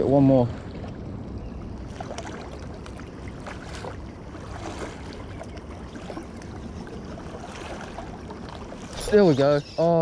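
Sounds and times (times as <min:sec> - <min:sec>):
small waves lapping on rocks: 0:01.9 - 0:10.0.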